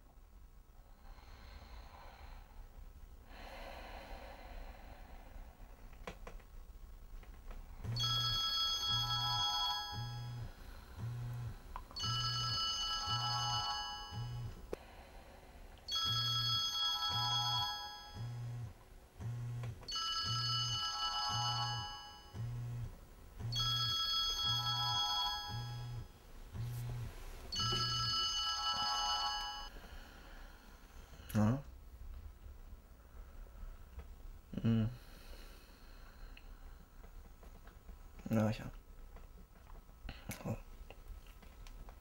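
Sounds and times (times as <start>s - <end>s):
phone ringtone melody: 7.9s - 10.5s, 12.0s - 14.6s, 15.9s - 18.3s, 19.9s - 22.4s, 23.5s - 26.1s, 27.5s - 29.7s.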